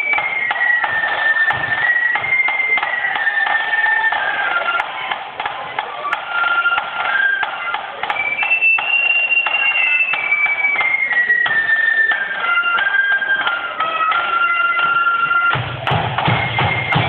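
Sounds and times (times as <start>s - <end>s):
flutes playing melody: 0.0s - 17.0s
snare drums tapping: 15.5s - 17.0s.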